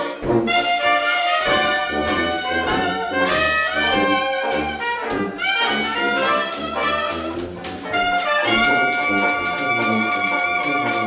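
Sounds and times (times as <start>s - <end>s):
trad jazz band playing: 0.0s - 11.0s.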